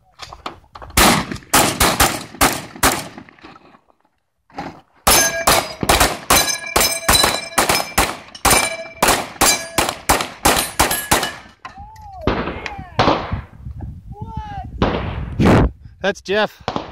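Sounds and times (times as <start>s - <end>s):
rifle shots: 1.0s - 3.4s, 5.1s - 11.5s, 12.3s - 13.5s, 14.8s - 15.3s, 16.6s - 16.9s
steel plate target ringing: 5.1s - 9.9s, 10.5s - 11.6s.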